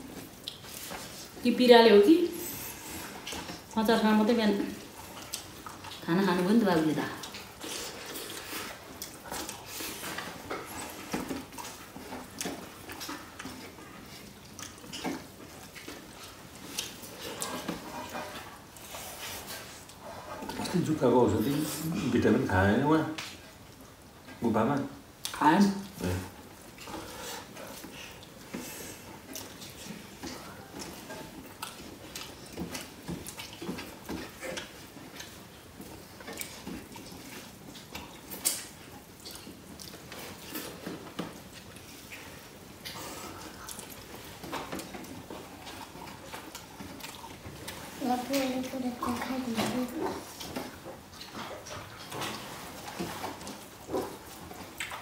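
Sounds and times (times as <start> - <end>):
chewing and mouth noises: 0.0 - 1.4, 2.3 - 22.4, 23.1 - 55.0.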